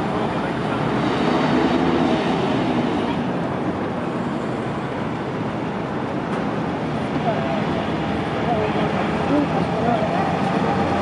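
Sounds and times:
vehicle engine and rolling noise: 0.0s - 11.0s.

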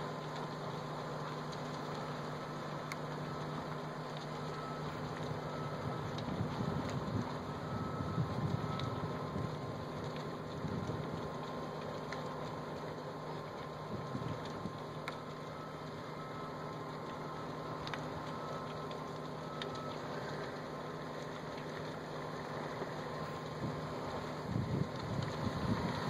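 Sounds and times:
faint clicks: 17.8s - 22.0s.

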